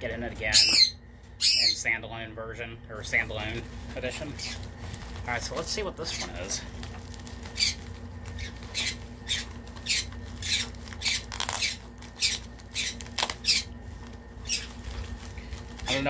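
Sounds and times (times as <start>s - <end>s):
birds squawking shrilly: 0.5s - 1.8s, 7.5s - 13.8s, 14.4s - 14.8s.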